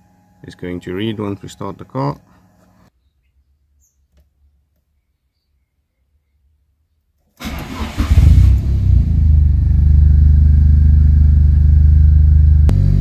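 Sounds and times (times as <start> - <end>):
car engine starting and idling: 7.4 - 13.0.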